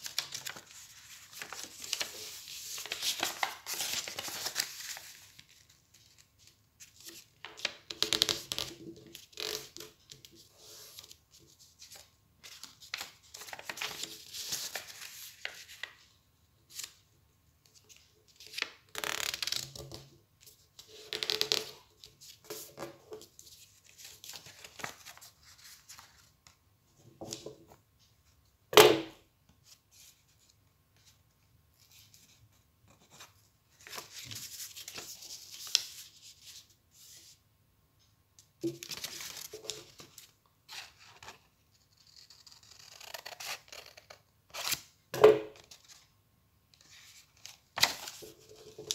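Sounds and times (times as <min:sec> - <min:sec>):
paper rustling and creasing: 0:00.0 - 0:16.0, 0:31.8 - 0:37.3, 0:46.8 - 0:48.9.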